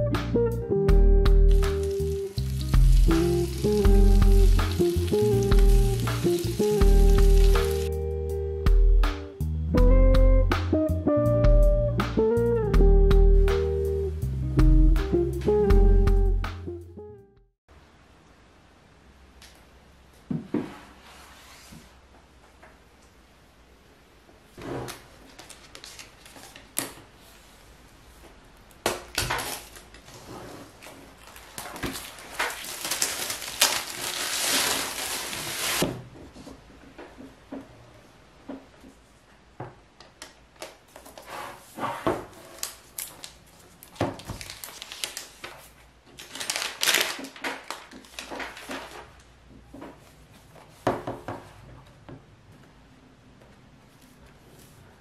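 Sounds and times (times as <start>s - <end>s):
wrapping tearing and crinkling: 1.5s - 7.9s, 25.2s - 27.0s, 29.1s - 35.9s, 42.4s - 49.2s.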